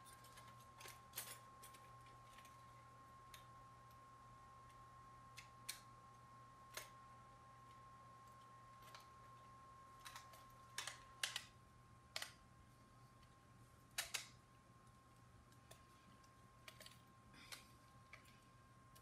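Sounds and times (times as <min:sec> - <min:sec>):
faint steady hum: 0:00.0 - 0:19.0
plastic parts clicking together: 0:10.0 - 0:11.5, 0:13.9 - 0:14.4, 0:15.5 - 0:18.4.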